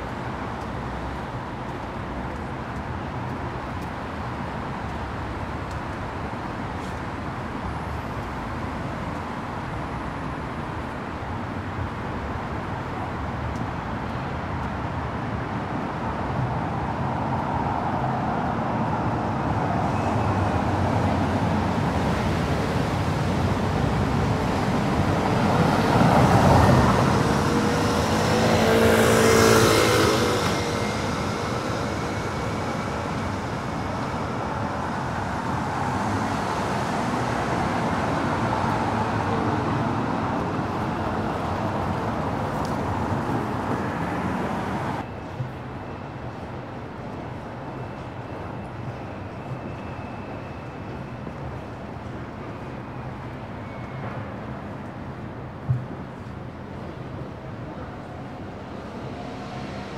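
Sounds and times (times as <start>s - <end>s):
city road traffic: 0.0s - 59.9s
vehicles passing close: 17.2s - 45.6s.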